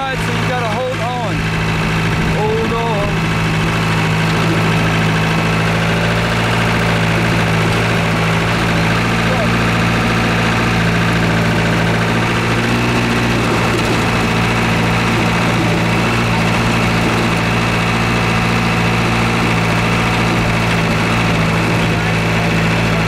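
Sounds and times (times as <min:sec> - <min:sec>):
truck engine running: 0:00.0 - 0:23.0.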